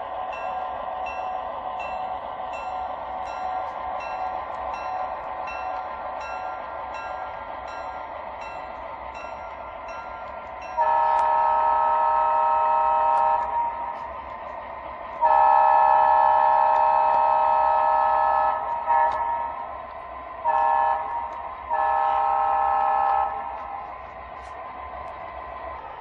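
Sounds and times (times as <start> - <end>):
model train horn chord: 10.8 - 14.0, 15.2 - 19.5, 20.5 - 23.4.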